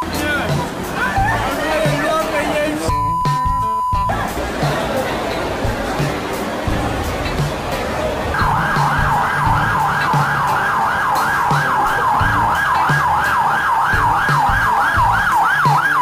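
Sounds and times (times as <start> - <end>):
music with steady beat: 2.9 - 16.0
siren yelping: 8.3 - 16.0.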